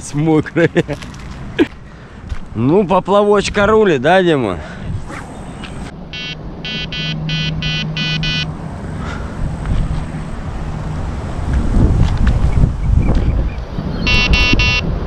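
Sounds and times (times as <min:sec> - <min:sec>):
wind rumble on microphone: 0:04.7 - 0:06.6, 0:08.6 - 0:15.0
bite alarm beeping: 0:06.1 - 0:08.5, 0:14.0 - 0:14.9.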